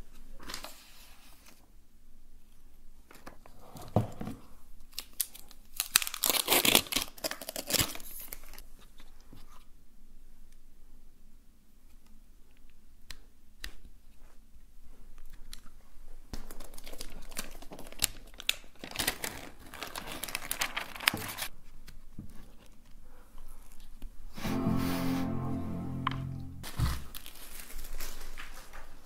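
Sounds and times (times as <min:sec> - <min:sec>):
packaging crinkling and rustling: 0:04.9 - 0:09.0, 0:16.4 - 0:22.8, 0:27.2 - 0:29.0
music: 0:24.4 - 0:27.0.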